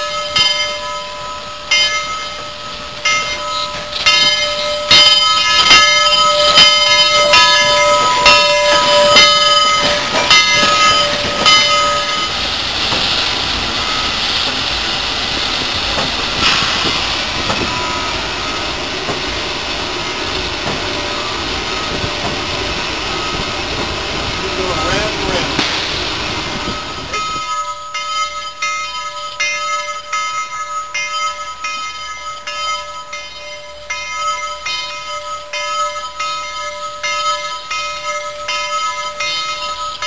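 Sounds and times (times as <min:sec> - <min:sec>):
locomotive running noise: 0:00.0 - 0:27.6
locomotive bell ringing: 0:00.0 - 0:40.0
steam hissing: 0:00.1 - 0:27.7.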